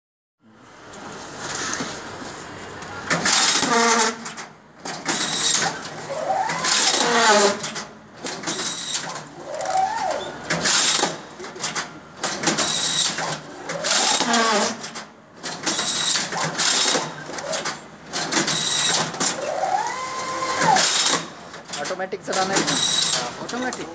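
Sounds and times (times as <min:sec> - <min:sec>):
strapping machine motor whine: 0:05.2 - 0:07.7, 0:08.3 - 0:11.2, 0:18.4 - 0:23.9
hissy mechanical clatter: 0:20.5 - 0:23.9.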